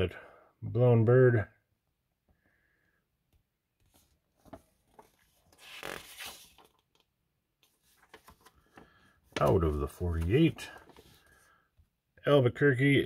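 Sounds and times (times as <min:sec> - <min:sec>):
magazine pages rustling: 0:03.8 - 0:11.6.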